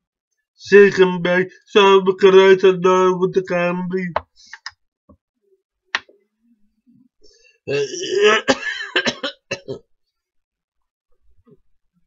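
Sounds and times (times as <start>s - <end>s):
person making harsh vocal sound: 7.7s - 8.5s.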